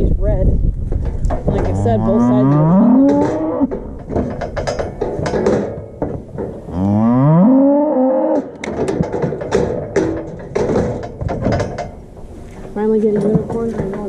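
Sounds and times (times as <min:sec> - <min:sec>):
metal chute clanking and rattling: 0:00.9 - 0:14.0
calf mooing: 0:01.6 - 0:03.8, 0:06.7 - 0:08.5.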